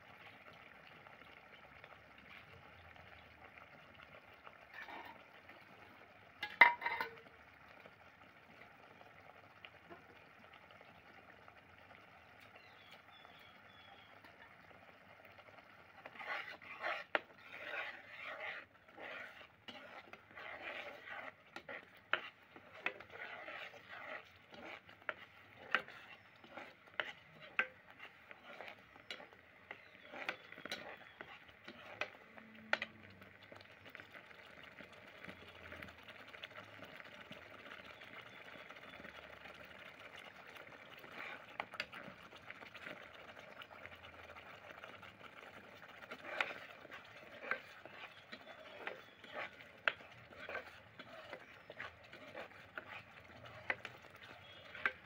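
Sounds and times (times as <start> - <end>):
curry bubbling in a pot: 0.0 - 55.0
ladle scraping and clinking on pot: 4.6 - 5.6, 6.4 - 7.3, 14.0 - 14.7, 15.9 - 33.6, 40.1 - 55.0.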